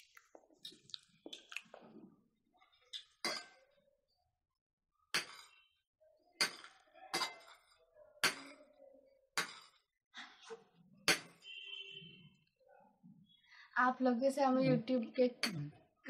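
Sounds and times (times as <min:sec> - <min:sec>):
metal spoon clinking on dishes: 0:03.2 - 0:03.7, 0:05.2 - 0:05.6, 0:06.4 - 0:08.6.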